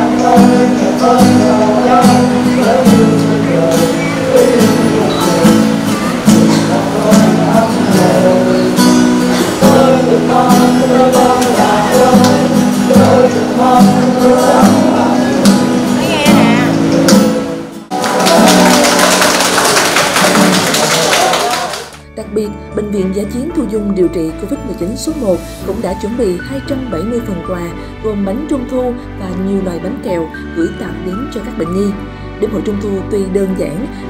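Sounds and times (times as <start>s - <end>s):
strummed acoustic guitar music: 0.0s - 21.4s.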